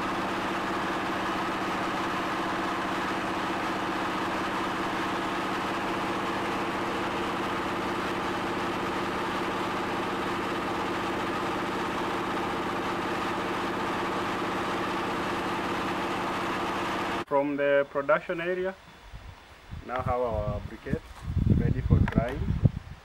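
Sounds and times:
engine throbbing under load: 0.0s - 17.3s.

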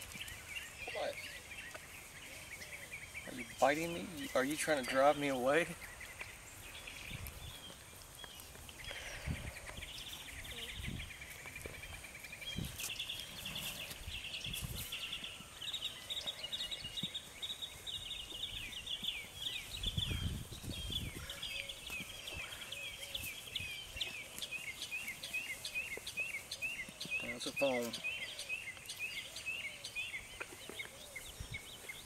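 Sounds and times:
songbirds chirping and trilling: 0.0s - 32.0s.

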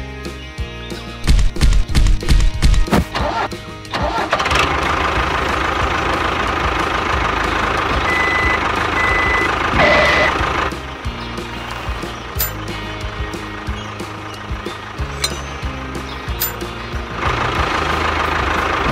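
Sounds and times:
tractor engine running: 1.0s - 18.9s
short high beeps: 8.1s - 10.4s.

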